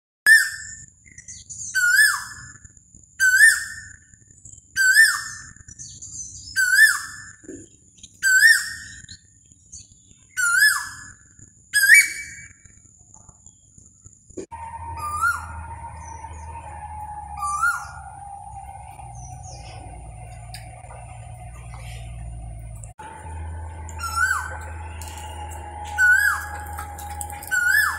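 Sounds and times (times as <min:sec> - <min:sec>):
bird whistled call: 0:00.3 - 0:02.5, 0:03.2 - 0:04.0, 0:04.8 - 0:07.4, 0:08.2 - 0:09.2, 0:10.3 - 0:11.2, 0:11.8 - 0:12.6, 0:14.5 - 0:20.7, 0:23.6 - 0:27.9
faint high whine: 0:14.4 - 0:27.9.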